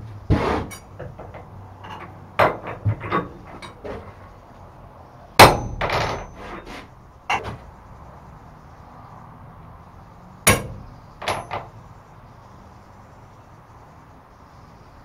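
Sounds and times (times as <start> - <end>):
metal knocks and clanks: 0.0 - 4.4, 5.4 - 7.7, 10.5 - 11.8.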